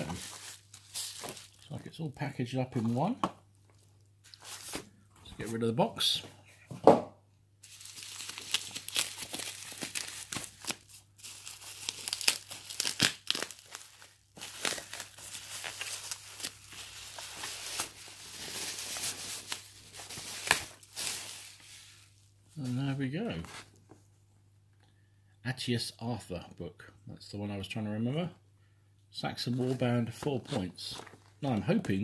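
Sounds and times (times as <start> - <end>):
bubble wrap crinkling: 0.0 - 1.8, 7.6 - 22.9.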